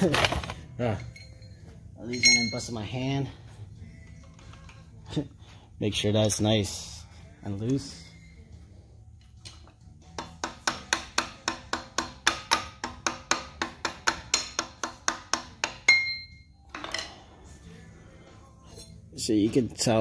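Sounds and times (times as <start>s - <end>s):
metal clink: 1.0s - 2.8s, 15.8s - 17.2s.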